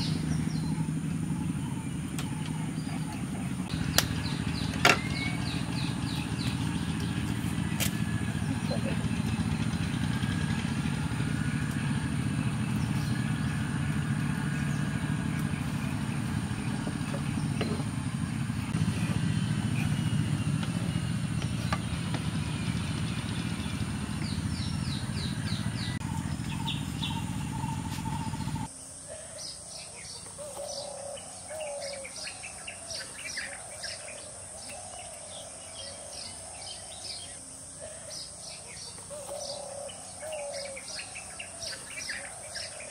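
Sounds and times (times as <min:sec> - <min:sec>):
small birds chirping: 0:00.0 - 0:42.9.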